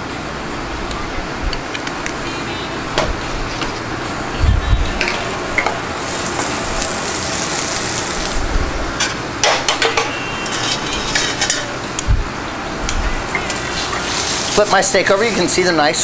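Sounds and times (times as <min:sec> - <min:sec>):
steak sizzling in oil: 0:05.5 - 0:08.5, 0:13.2 - 0:15.6
pans and utensils clinking: 0:09.0 - 0:11.8.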